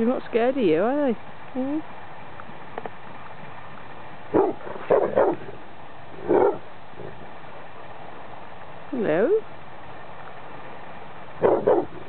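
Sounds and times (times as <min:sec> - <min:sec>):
dog barking: 0:04.3 - 0:05.5, 0:06.2 - 0:06.7, 0:11.4 - 0:12.0.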